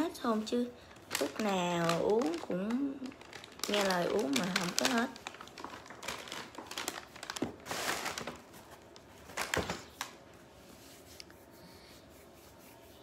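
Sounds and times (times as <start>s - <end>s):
paper rustling: 1.0s - 11.2s.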